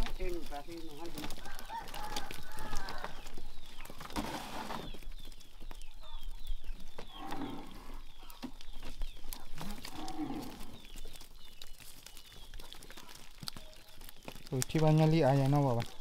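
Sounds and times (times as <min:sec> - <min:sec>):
cattle lowing: 0:05.8 - 0:14.5.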